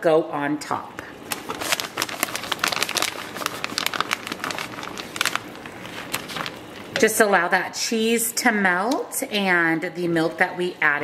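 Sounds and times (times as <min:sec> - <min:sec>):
plastic bag crinkling: 0:01.2 - 0:07.0.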